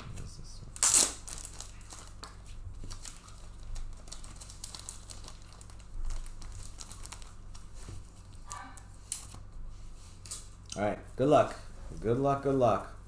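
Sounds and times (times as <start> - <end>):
plastic packaging crackling: 0.8 - 9.4.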